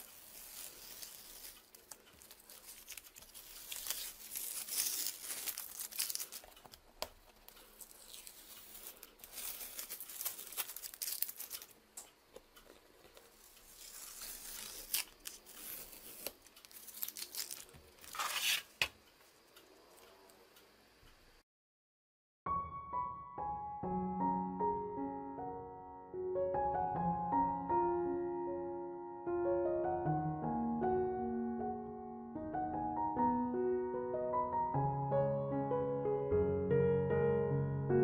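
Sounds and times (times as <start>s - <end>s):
masking tape peeled off paper: 0.0s - 11.8s, 12.6s - 19.4s.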